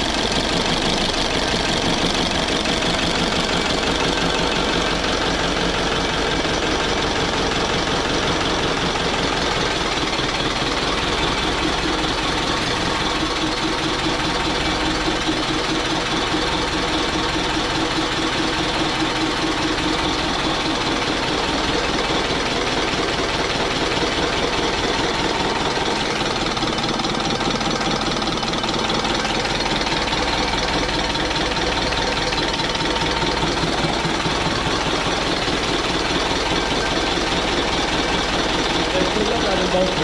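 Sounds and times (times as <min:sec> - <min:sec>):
old stationary engine running: 0:00.0 - 0:40.0.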